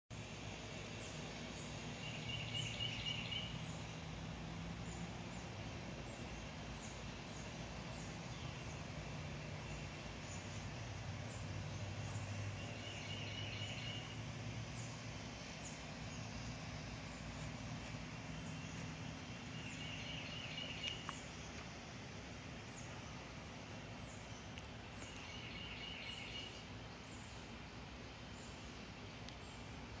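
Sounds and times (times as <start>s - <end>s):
steady low hum: 0.1s - 30.0s
songbird rapid trill: 9.5s - 21.5s.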